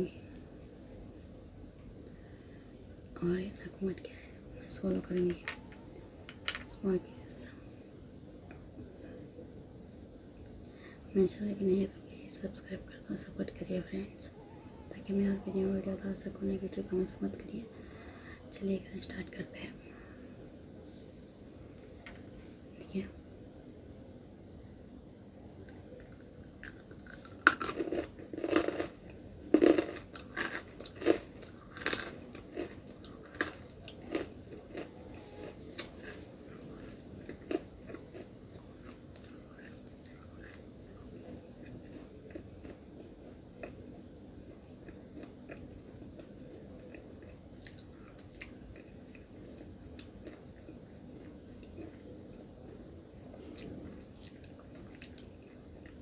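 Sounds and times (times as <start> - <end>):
soft chewing: 25.5 - 56.0
crisp crunching bites: 26.6 - 34.9.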